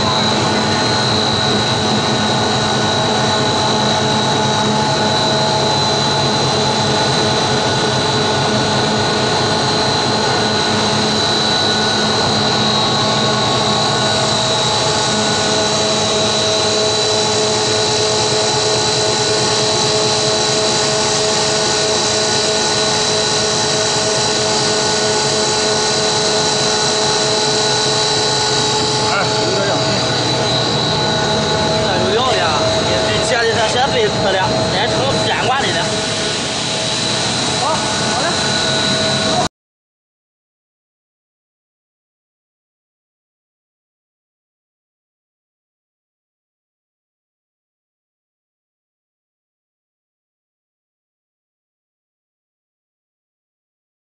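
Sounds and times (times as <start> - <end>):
machinery running with high whine: 0.0 - 39.5.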